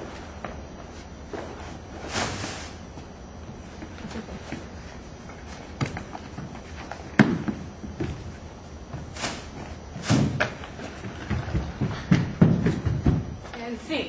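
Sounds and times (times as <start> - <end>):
knocks and thumps of props: 10.0 - 13.4.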